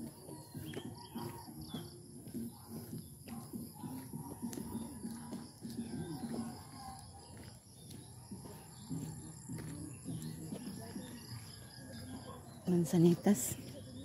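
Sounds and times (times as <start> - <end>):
people talking: 8.4 - 14.0.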